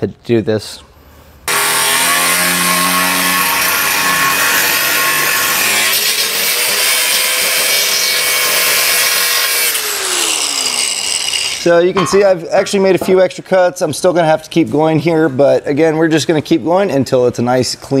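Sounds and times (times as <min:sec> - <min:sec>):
angle grinder cutting metal: 0:01.5 - 0:12.8.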